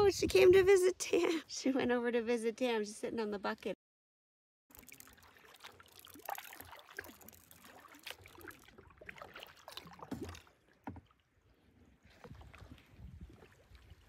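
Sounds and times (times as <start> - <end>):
water dripping: 4.7 - 11.0
paddle splashing water: 4.7 - 14.0.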